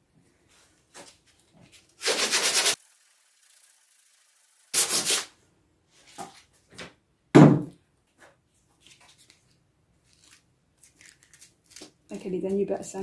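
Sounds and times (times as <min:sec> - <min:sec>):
sandpaper rubbing wood: 0:02.0 - 0:02.8, 0:04.7 - 0:05.3
loud thump: 0:07.4 - 0:07.7.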